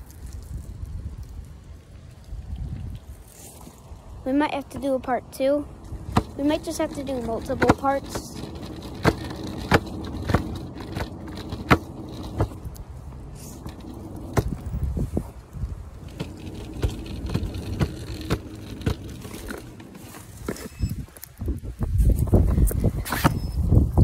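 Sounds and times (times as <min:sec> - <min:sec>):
hoverboard wheels rumbling on pavement: 0:00.0 - 0:24.0
sharp clicks and knocks: 0:06.0 - 0:12.9, 0:13.5 - 0:14.8, 0:16.0 - 0:21.3.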